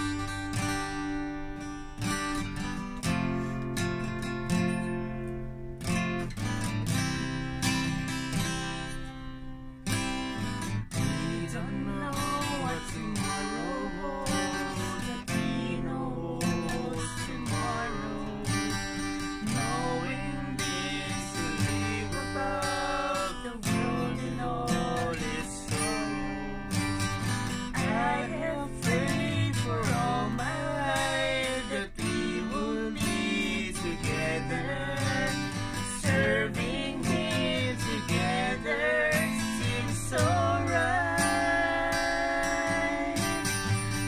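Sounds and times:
acoustic guitar strumming: 0:00.0 - 0:44.0
man and woman singing duet: 0:11.0 - 0:27.0, 0:27.7 - 0:43.8.

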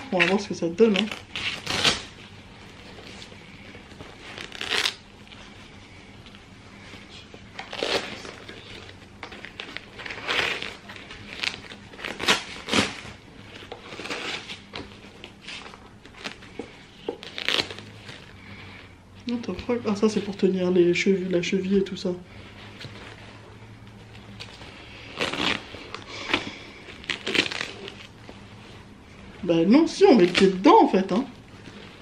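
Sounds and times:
fabric rustling and rasping pulls: 0:00.0 - 0:20.5, 0:21.6 - 0:32.0.

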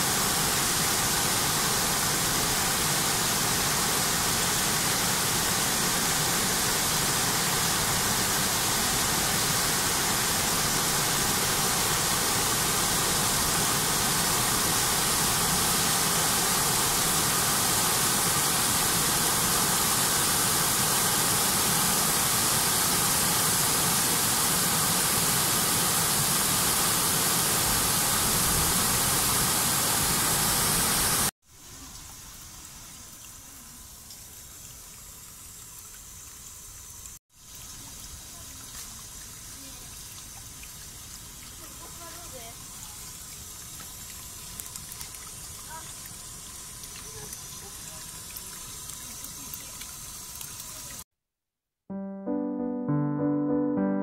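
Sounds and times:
water rushing over weirs: 0:00.0 - 0:31.3
water trickling into basin: 0:37.4 - 0:51.0.

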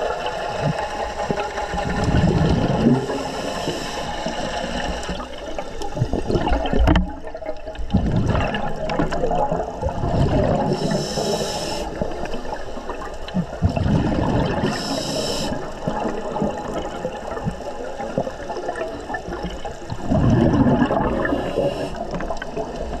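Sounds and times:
bubbling regulator exhalations: 0:00.2 - 0:07.2, 0:07.8 - 0:23.0
hissing regulator inhalations: 0:03.0 - 0:05.4, 0:10.6 - 0:12.3, 0:14.6 - 0:15.8, 0:21.1 - 0:22.3.

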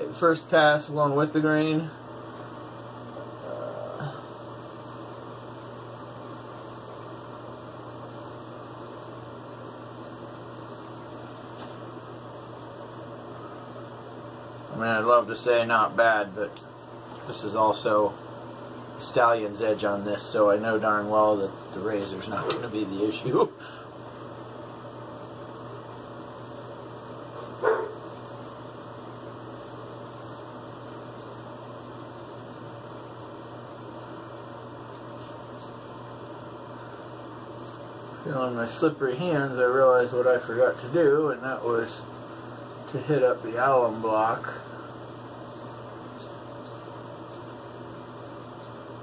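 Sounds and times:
room tone hum and hiss: 0:00.0 - 0:49.0
dog barking: 0:27.6 - 0:28.0.

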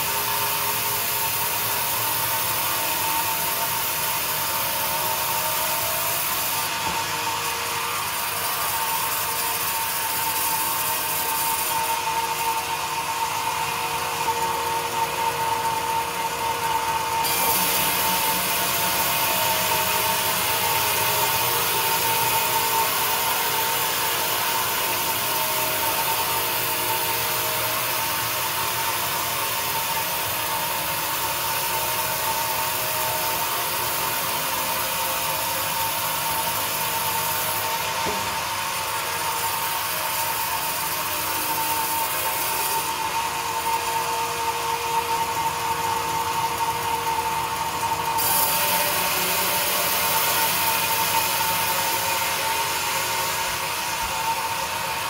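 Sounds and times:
band saw cutting wood: 0:00.0 - 0:55.0.

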